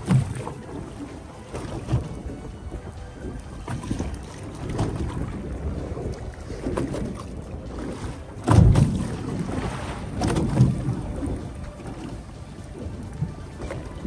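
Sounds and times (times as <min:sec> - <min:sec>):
sea noise: 0:00.0 - 0:14.0
wind buffeting microphone: 0:00.0 - 0:14.0
heavy low thump: 0:08.4 - 0:09.0.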